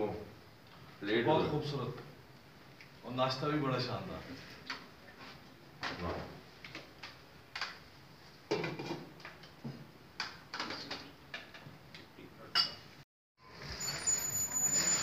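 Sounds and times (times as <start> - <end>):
plates and cutlery clinking: 12.5 - 12.9.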